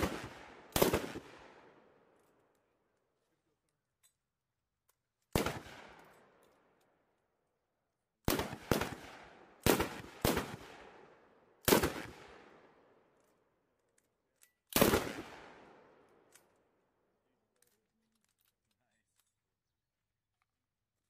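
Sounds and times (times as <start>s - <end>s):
gunfire echo: 0.0s - 2.1s, 5.3s - 6.4s, 8.2s - 13.1s, 14.7s - 16.3s.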